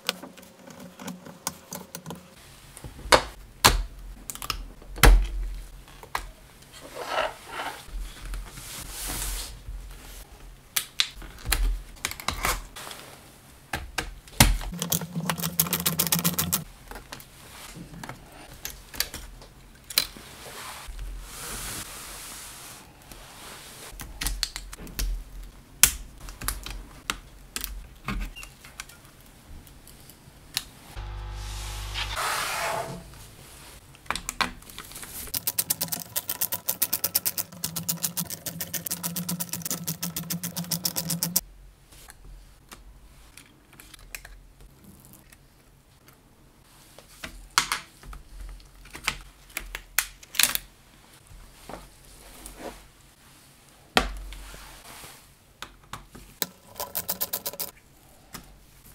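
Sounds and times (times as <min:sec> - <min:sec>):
rapid even clicking: 0:14.7 - 0:16.6, 0:35.3 - 0:41.4, 0:56.4 - 0:57.7.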